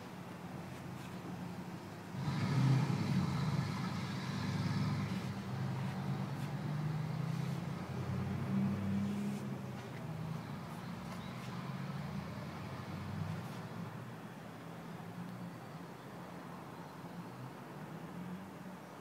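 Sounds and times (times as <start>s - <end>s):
vehicle engine running: 2.1s - 13.9s.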